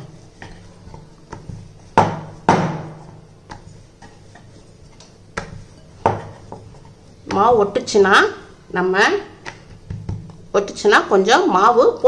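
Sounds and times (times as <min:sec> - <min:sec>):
rolling pin knocking on wooden board: 0:00.4 - 0:03.7, 0:05.3 - 0:07.9, 0:09.4 - 0:10.4.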